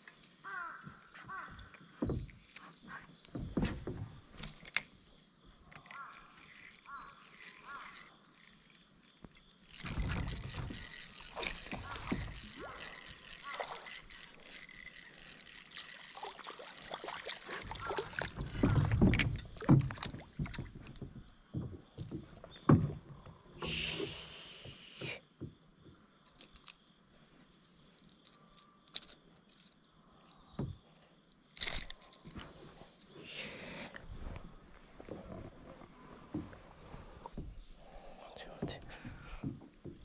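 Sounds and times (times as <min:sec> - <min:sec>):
water splashing: 0:09.8 - 0:21.0.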